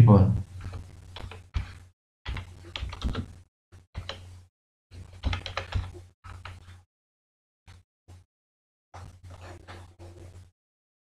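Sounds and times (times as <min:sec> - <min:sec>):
keyboard typing: 0:00.7 - 0:03.3, 0:04.0 - 0:04.2, 0:05.2 - 0:06.8.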